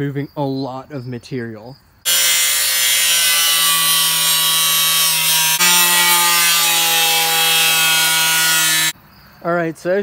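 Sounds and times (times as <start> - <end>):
angle grinder cutting sheet metal: 2.1 - 9.0.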